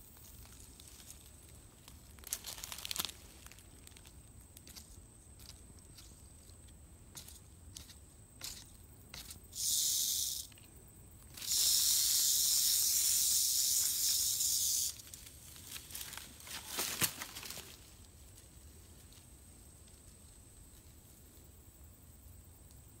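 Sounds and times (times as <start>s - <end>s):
dry leaves and twigs crackling: 0.0s - 9.8s, 10.4s - 21.6s
rattlesnake rattling: 0.3s - 10.6s, 11.2s - 17.8s.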